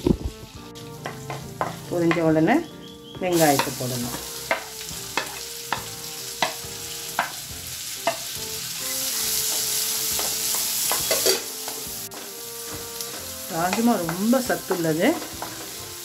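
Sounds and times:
onions sizzling in butter: 0.0s - 16.0s
wooden spatula knocking pan: 1.0s - 2.4s, 3.6s - 7.4s, 9.5s - 15.8s.

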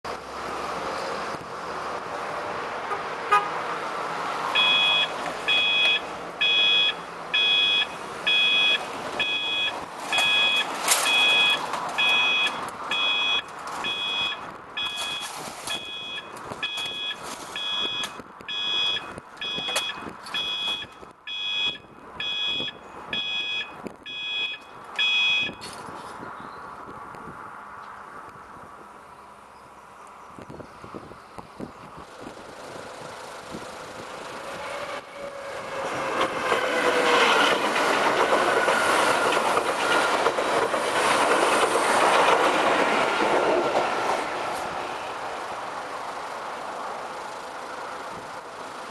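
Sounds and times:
road traffic noise: 0.0s - 48.9s
level crossing two-tone beep: 4.6s - 25.6s.

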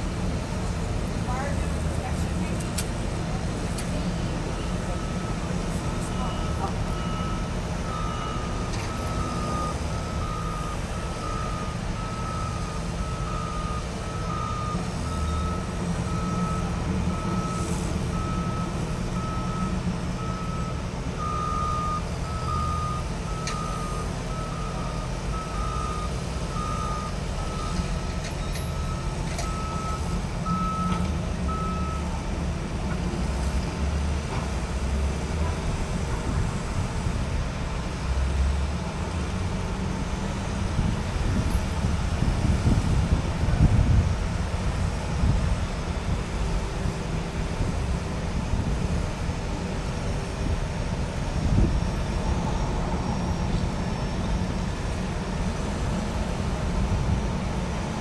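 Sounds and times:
diesel engines rumbling: 0.0s - 58.0s
traffic: 0.0s - 58.0s
truck backup alarm beeping: 3.4s - 32.2s, 47.6s - 57.9s.

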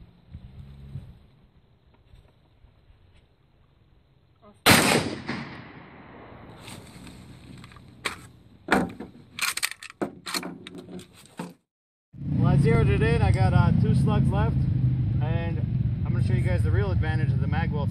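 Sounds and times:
shotgun shot echoing: 4.6s - 6.6s
sharp knocks and clatter: 7.5s - 11.6s.

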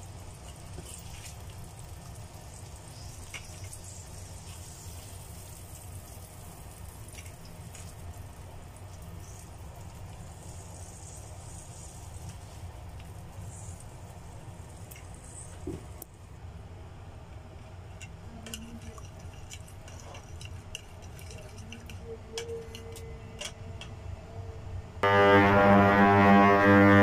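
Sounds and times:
shrimp sizzling in oil: 0.0s - 15.7s
steady low hum: 23.0s - 27.0s.

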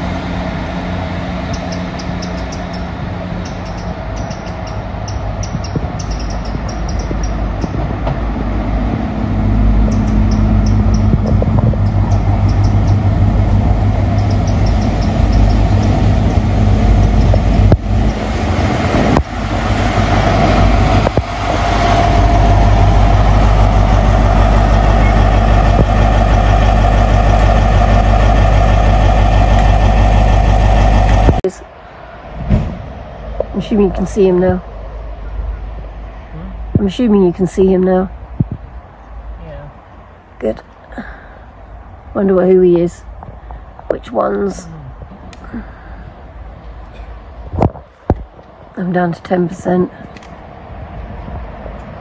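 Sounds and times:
train wheels rolling: 0.0s - 31.5s
diesel engine: 0.0s - 52.0s.

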